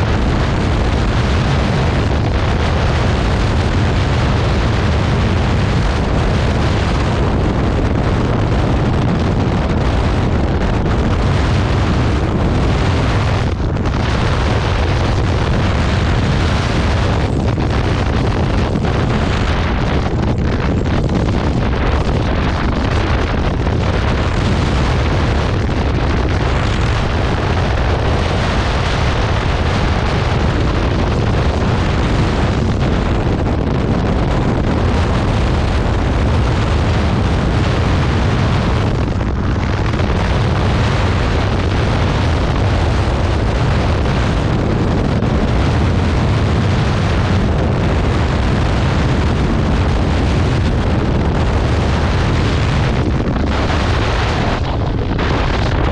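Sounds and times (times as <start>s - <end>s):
wind buffeting microphone: 0.0s - 55.9s.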